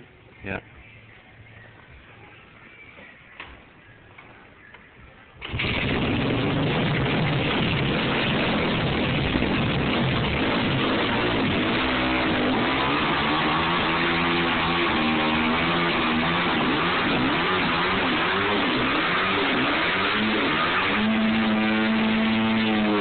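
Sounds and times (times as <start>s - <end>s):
motorcycle engine revving: 5.4s - 23.0s
tire spinning on concrete: 5.4s - 23.0s.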